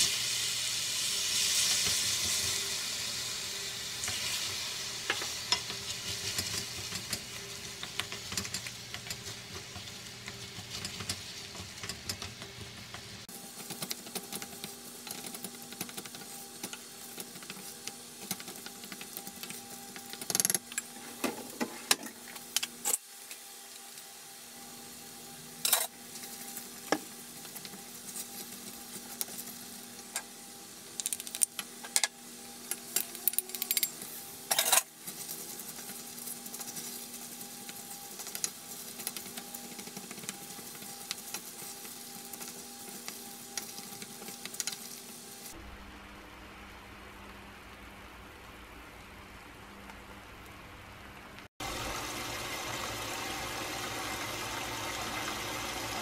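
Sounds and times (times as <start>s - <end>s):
sizzling: 0.0s - 56.0s
wooden spoon stirring in pot: 4.0s - 22.4s, 35.0s - 45.5s
faint steady hum: 42.3s - 56.0s.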